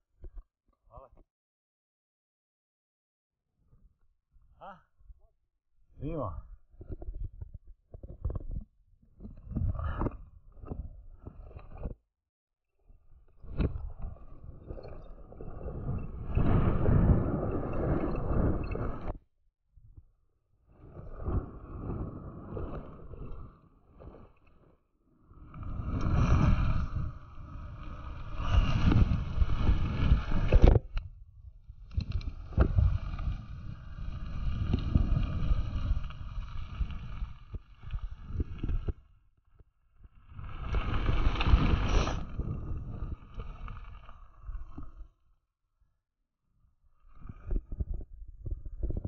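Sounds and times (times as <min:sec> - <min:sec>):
bike tyres rumbling over gravel: 0:25.4 - 0:30.6, 0:32.0 - 0:38.9, 0:40.2 - 0:44.8.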